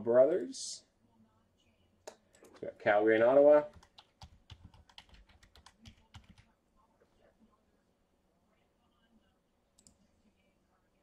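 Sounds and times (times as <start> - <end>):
keyboard typing clicks: 3.7 - 6.5.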